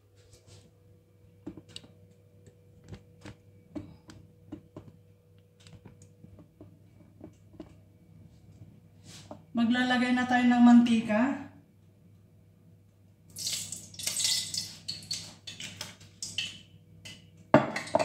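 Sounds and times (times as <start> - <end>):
steady low hum: 0.0 - 13.3.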